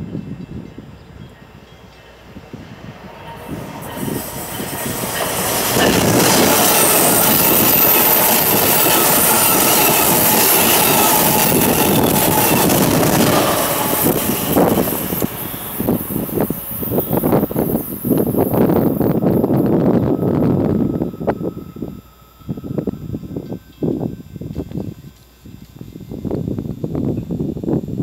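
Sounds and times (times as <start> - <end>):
train passing at speed: 0.0 - 25.0.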